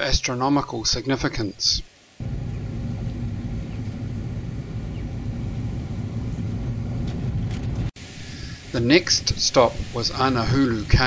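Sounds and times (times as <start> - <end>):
car driving on dirt road: 2.2 - 8.0.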